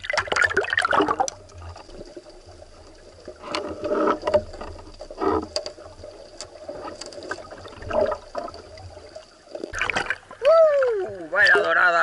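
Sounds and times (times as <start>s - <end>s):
underwater bubbling and sloshing: 0.0s - 12.0s.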